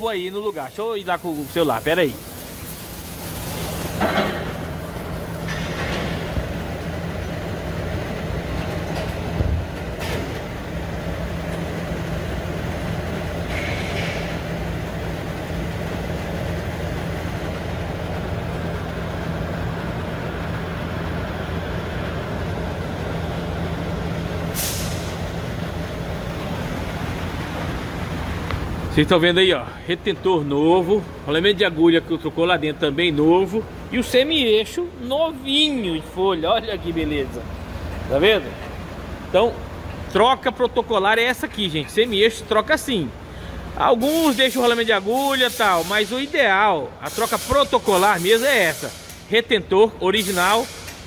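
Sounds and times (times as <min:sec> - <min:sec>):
workshop machinery humming: 0:00.0 - 0:51.0
short hisses: 0:24.5 - 0:25.2.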